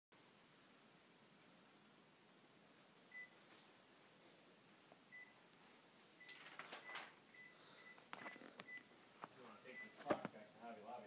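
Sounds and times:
faint high beeps: 5.1 - 5.4, 6.2 - 8.9, 9.7 - 10.0
paper rustling: 6.0 - 7.2.

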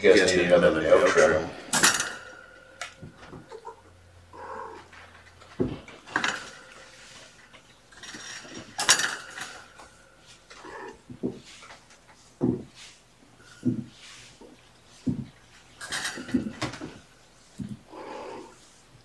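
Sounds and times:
kittens mewing: 3.2 - 5.2, 10.5 - 11.2, 17.6 - 18.6
thumps and clatters: 4.8 - 12.8, 13.4 - 17.9.

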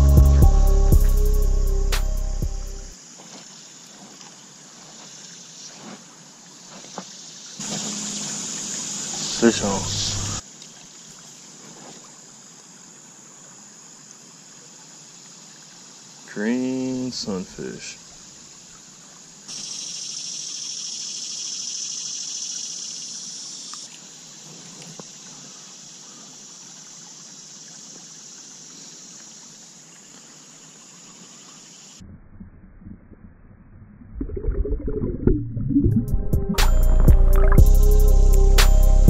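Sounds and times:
creek trickling: 0.0 - 32.0, 34.4 - 38.6
high insect buzzing: 7.6 - 10.4, 36.6 - 39.0
water sloshing and bubbling: 7.6 - 14.2, 32.0 - 37.6.

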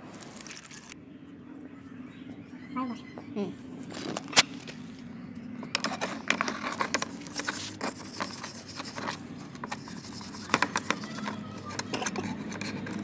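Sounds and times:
wire brush scrubbing metal: 5.9 - 13.0.

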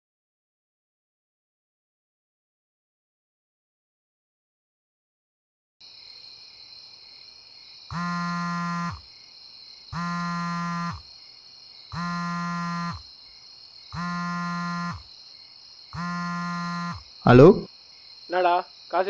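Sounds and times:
crickets chirping: 5.8 - 19.0
mobile phone vibrating: 7.9 - 9.1, 9.9 - 11.1, 11.9 - 13.1, 13.9 - 15.1, 16.0 - 17.7.

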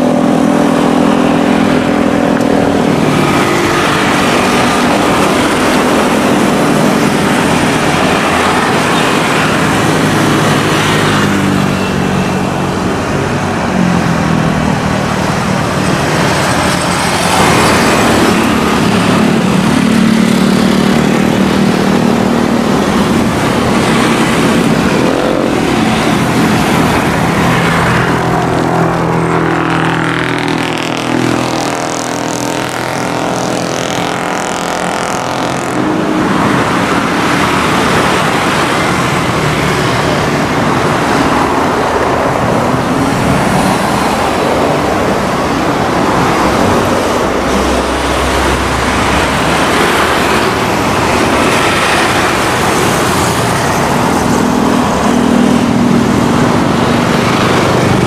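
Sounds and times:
turboprop engines droning: 0.0 - 58.0.

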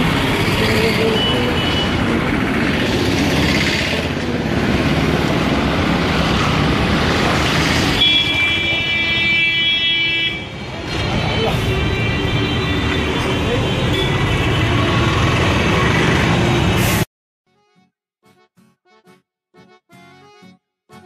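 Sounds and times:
cars passing: 0.0 - 9.1, 10.3 - 17.0.

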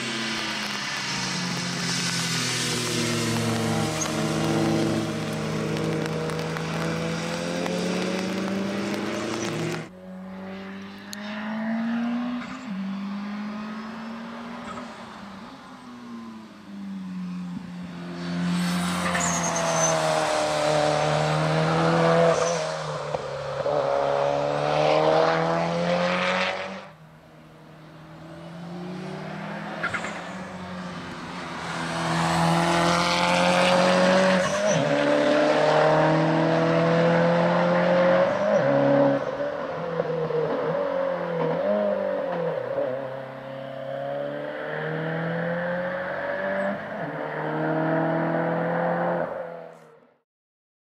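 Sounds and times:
tyres hissing on wet track: 0.0 - 9.9
car engine revving hard: 31.8 - 39.2.

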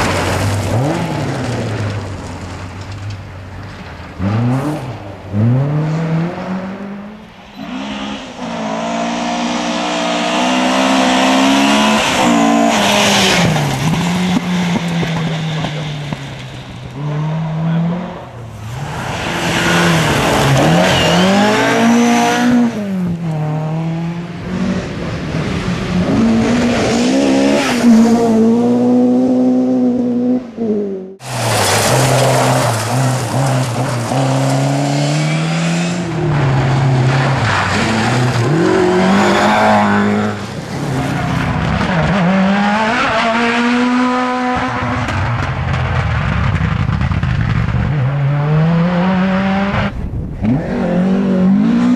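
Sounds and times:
tyres on loose gravel: 0.0 - 5.1, 31.2 - 35.3
rally car engines revving hard: 4.2 - 51.9.

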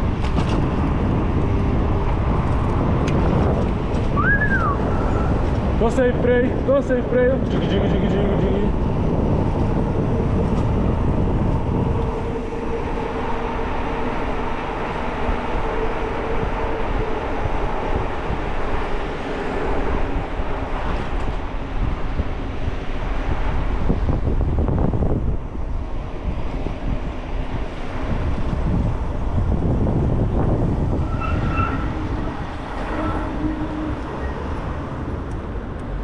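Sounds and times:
road and traffic noise: 0.0 - 36.0
wind on microphone: 0.0 - 36.0.

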